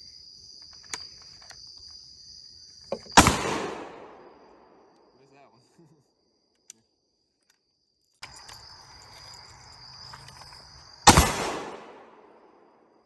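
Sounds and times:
insects trilling: 0.0 - 13.0
rifle shot echoing: 3.0 - 5.0, 11.0 - 12.7.

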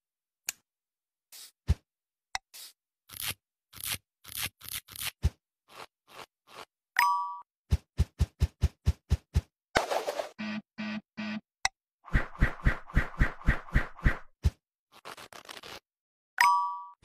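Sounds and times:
wire rasping scrapes: 3.1 - 6.7.

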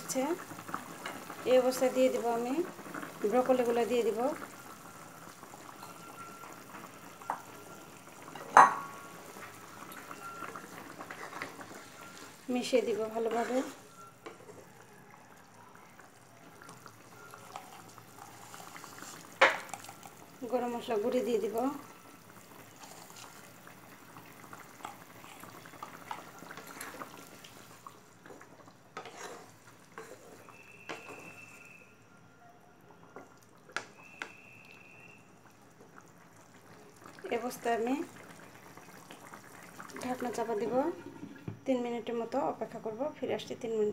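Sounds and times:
broth bubbling in a pan: 0.0 - 43.9
spatula stirring wet curry: 13.2 - 14.6, 24.8 - 31.5.

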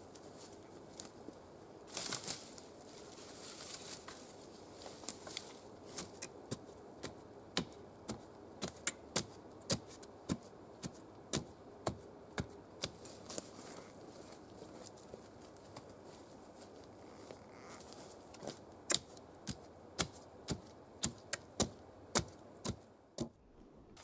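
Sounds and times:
boots crunching on soil and leaves: 1.9 - 6.3.

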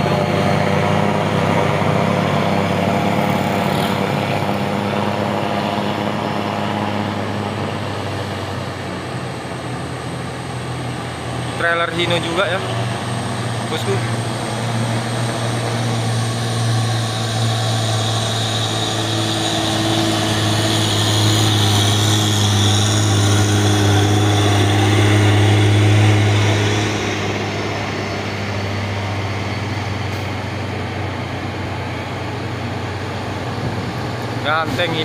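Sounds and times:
truck diesel engine passing: 0.0 - 35.0.

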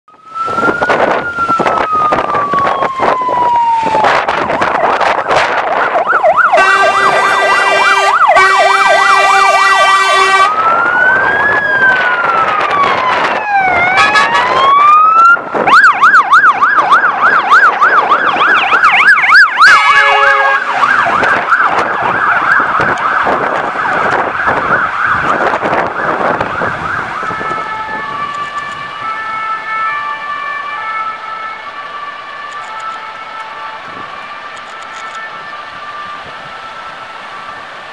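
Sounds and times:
fire engine sirens: 0.1 - 37.9
horn blasts: 6.6 - 10.6, 13.9 - 14.5, 19.7 - 20.8.

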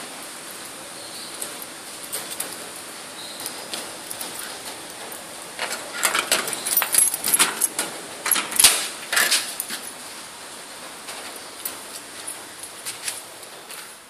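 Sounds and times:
keys jangling: 1.6 - 2.7, 3.4 - 10.0.

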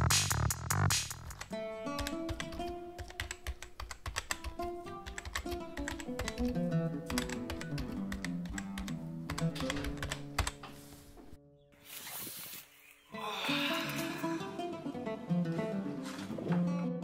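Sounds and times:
background music with stepping melody: 0.0 - 11.6, 14.2 - 17.0
rapid keyboard key clicks: 1.3 - 10.6.

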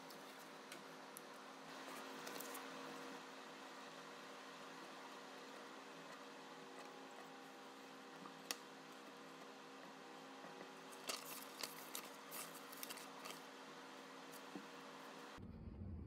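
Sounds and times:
faint room hum: 0.0 - 16.0
paper sheets rustling: 1.8 - 2.7, 10.9 - 13.5.

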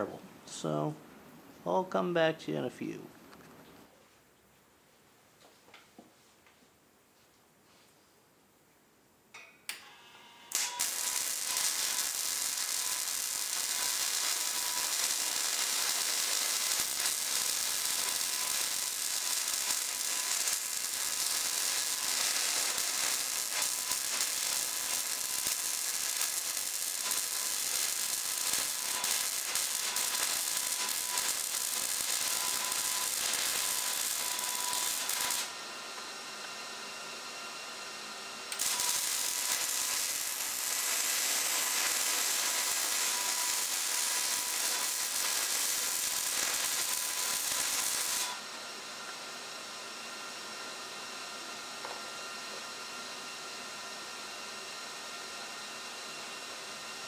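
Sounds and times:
welder arc crackling and sizzling: 9.7 - 36.0, 38.5 - 48.5.

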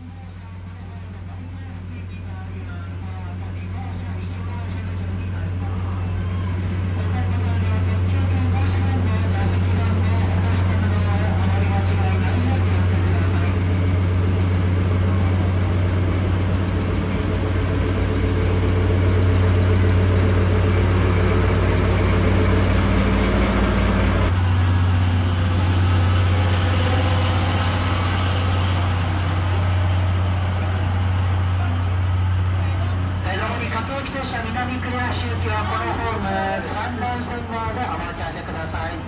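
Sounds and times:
diesel locomotive engine idling: 0.0 - 39.0.

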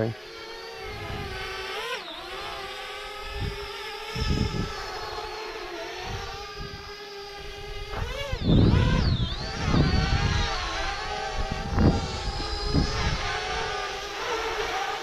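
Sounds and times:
drone propellers whining: 0.0 - 15.0
wind thumps on microphone: 3.3 - 4.8, 6.0 - 6.9, 7.5 - 13.9.

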